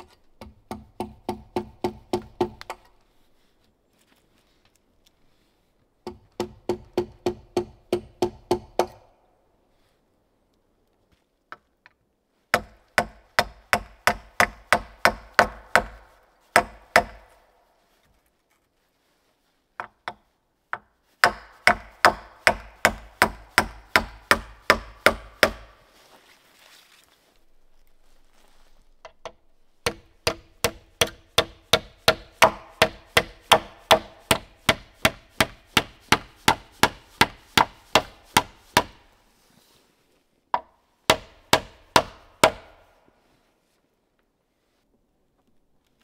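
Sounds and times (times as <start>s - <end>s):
hand tool striking wood: 0.0s - 3.0s, 6.0s - 9.0s, 12.5s - 17.3s, 19.8s - 25.8s, 29.0s - 39.1s, 40.5s - 42.8s.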